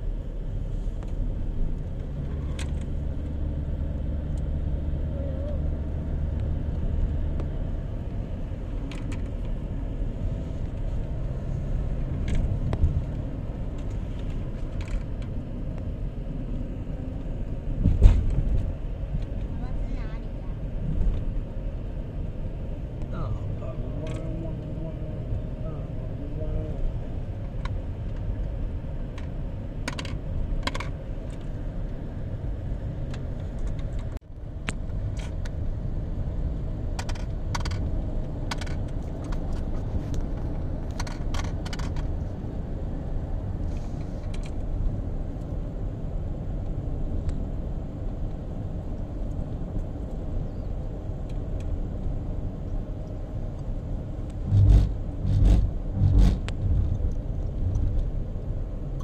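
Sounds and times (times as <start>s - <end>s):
car road and engine rumble: 0.0s - 59.0s
light clicks and rattles: 37.0s - 42.4s
low thumps: 54.4s - 57.0s.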